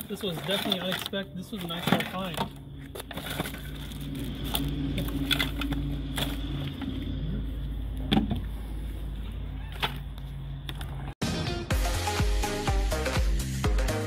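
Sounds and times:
hands rummaging through toys: 0.0 - 7.0
steady low hum: 2.4 - 11.2.

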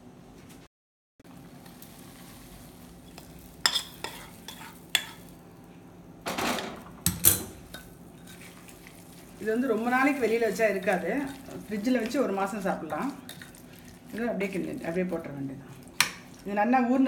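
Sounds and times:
spoon scraping and clinking pan: 3.1 - 5.3, 9.8 - 13.6.

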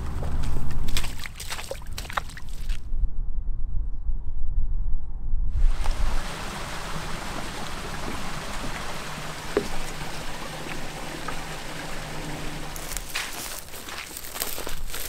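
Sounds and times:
running water hissing: 5.7 - 15.0.

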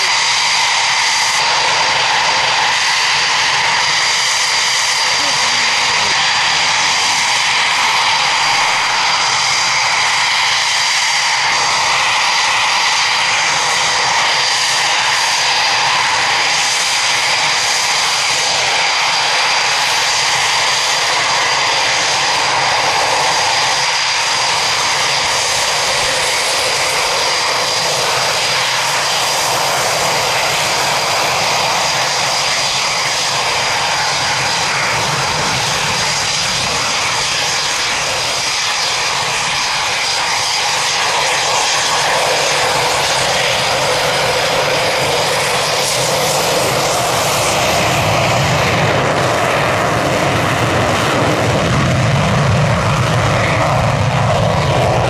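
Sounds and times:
jet engines with high whine: 0.0 - 55.0.

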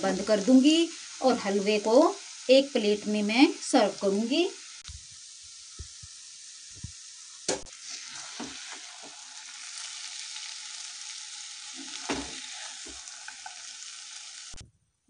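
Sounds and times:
food sizzling in a pan: 0.0 - 14.6
spatula scraping a pan: 7.8 - 10.2, 11.7 - 13.7.

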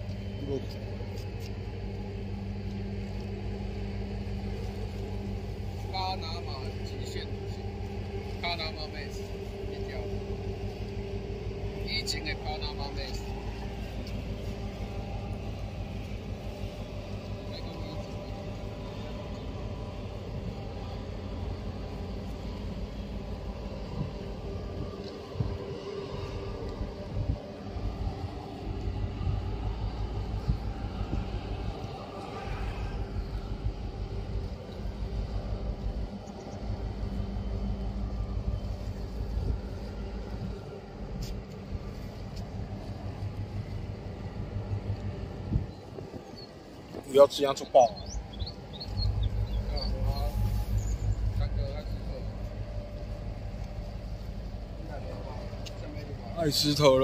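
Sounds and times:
boat engine rumble: 0.0 - 57.0
wind: 0.0 - 57.0.

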